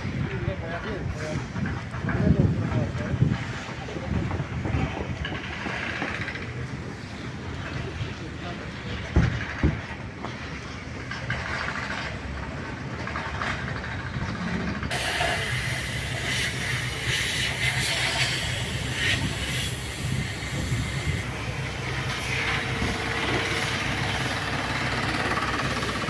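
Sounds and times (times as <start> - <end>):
low rumble of railway station: 0.0 - 26.0
hiss: 14.9 - 26.0.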